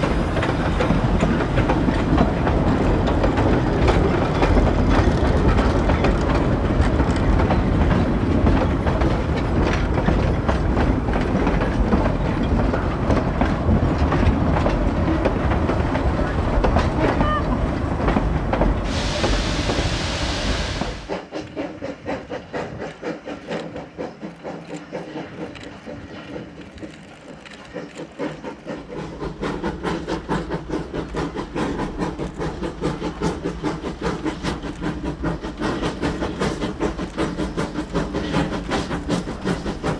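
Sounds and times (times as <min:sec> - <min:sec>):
steam hiss: 0:00.0 - 0:16.5, 0:18.2 - 0:39.9
wheel clatter over rail joints: 0:00.0 - 0:18.9
steam train rumble: 0:00.0 - 0:39.9.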